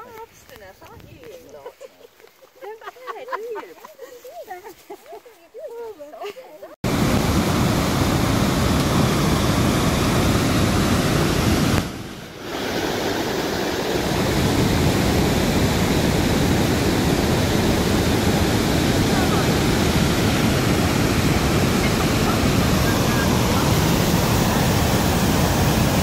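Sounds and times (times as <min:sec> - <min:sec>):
waterfall rushing: 0:06.8 - 0:26.0.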